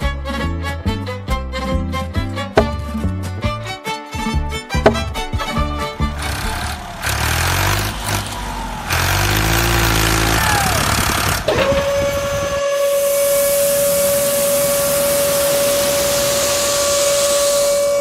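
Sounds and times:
small electric motor running: 6.2s - 18.0s
tipper mechanism high whine: 6.2s - 18.0s
sand pouring with a hiss: 12.9s - 18.0s.

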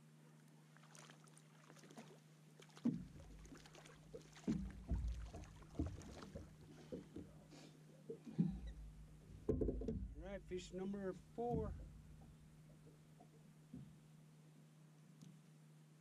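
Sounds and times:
faint steady hum: 0.0s - 16.0s
fish splashing and thrashing: 0.6s - 7.4s
thumps against boat: 2.8s - 3.5s, 4.1s - 7.5s, 8.1s - 10.2s, 11.3s - 12.3s.

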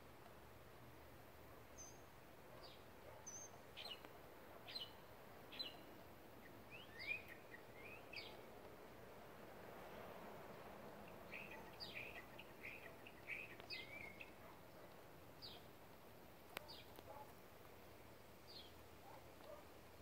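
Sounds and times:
small bird chirping: 1.7s - 8.5s, 11.0s - 15.8s, 16.5s - 17.3s, 18.5s - 18.9s.

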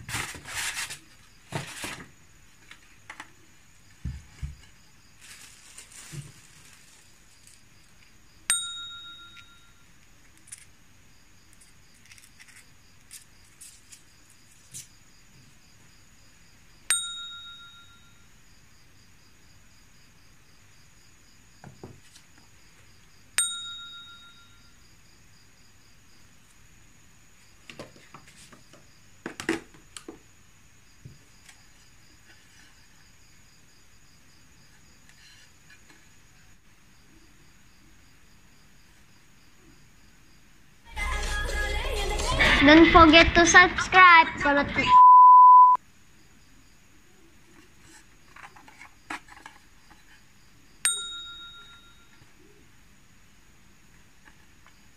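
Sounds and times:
rustling and knocking: 3.9s - 7.6s
bright bell-like ding: 8.5s - 9.7s, 16.9s - 18.1s, 23.4s - 24.6s, 50.9s - 52.0s.

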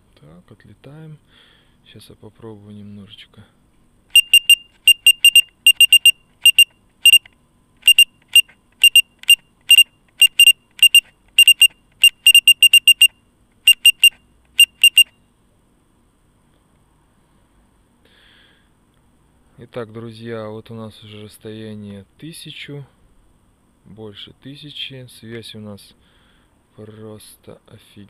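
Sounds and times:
short high electronic beeps: 4.1s - 15.2s.

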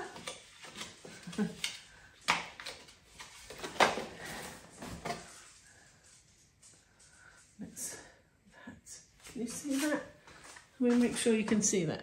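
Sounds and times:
plastic and card clicking: 1.6s - 4.0s.

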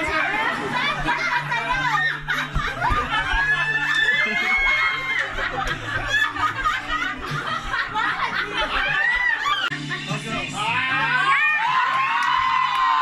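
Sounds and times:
group of people laughing: 0.0s - 10.5s
shrieks of laughter: 0.6s - 9.9s.

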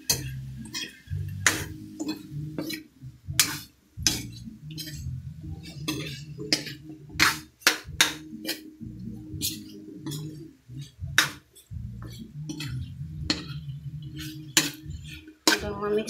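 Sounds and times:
spatula knocking against a pan: 5.6s - 8.6s, 11.1s - 11.4s, 12.0s - 13.6s.

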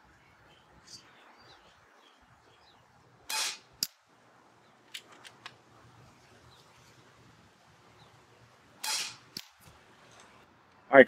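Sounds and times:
sharp crack: 8.8s - 9.8s.

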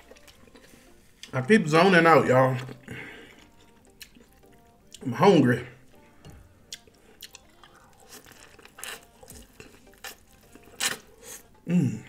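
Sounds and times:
chewing corn cob: 0.0s - 1.4s, 2.5s - 5.1s, 6.7s - 11.7s
person humming mmm: 10.8s - 12.0s.

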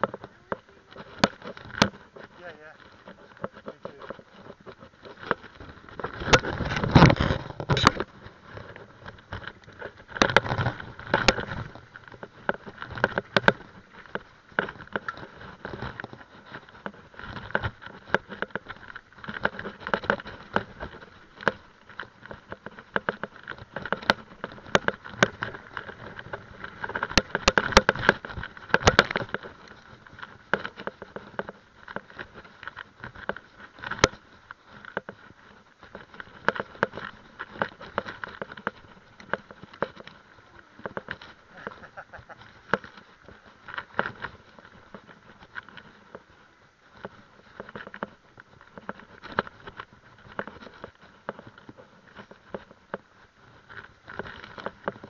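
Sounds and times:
bike rattling and knocking: 0.0s - 55.0s
bike tyres on dirt: 0.0s - 55.0s.

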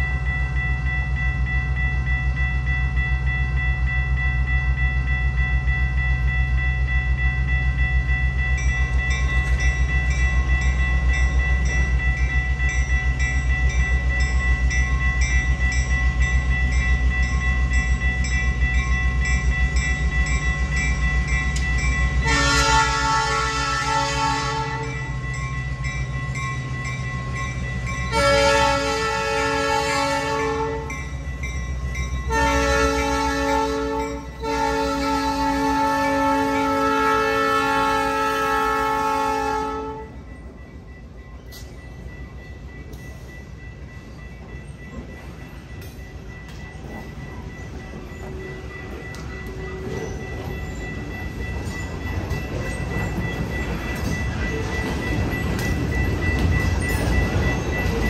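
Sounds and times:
crossing signal bell ringing: 0.0s - 58.0s
locomotive horn blasts: 22.2s - 25.0s, 28.1s - 31.0s, 32.3s - 40.2s.

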